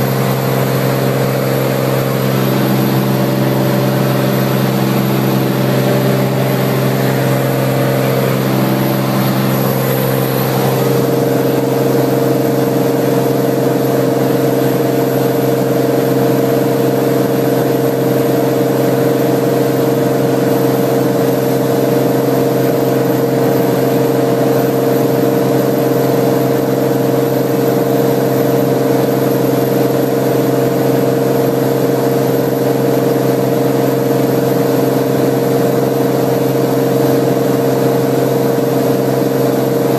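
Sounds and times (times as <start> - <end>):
propeller plane engine drone: 0.0 - 39.9.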